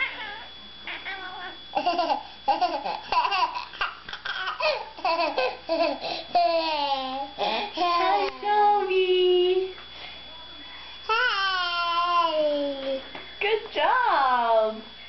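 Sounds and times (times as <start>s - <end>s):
toddler giggling: 1.8s - 8.3s.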